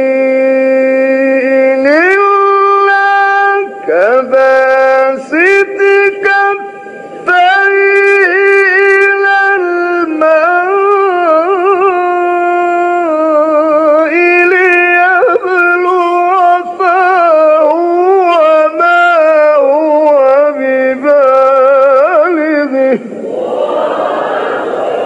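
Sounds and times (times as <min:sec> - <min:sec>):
man chanting melodically: 0:00.0 - 0:23.4.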